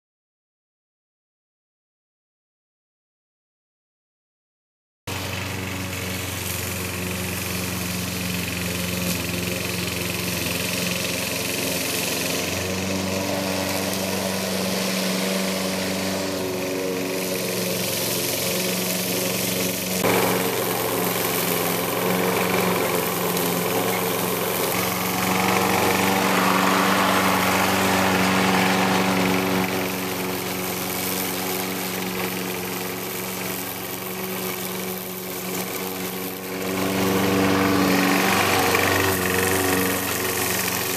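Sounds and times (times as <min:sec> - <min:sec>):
lawn mower running: 0:05.1 - 0:40.9.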